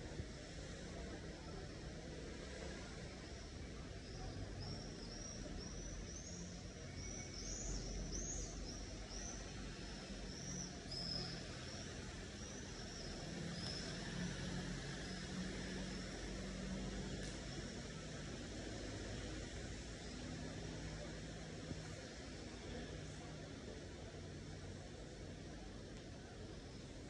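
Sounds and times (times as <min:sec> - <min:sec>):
outdoor noise: 0:00.0 - 0:27.0.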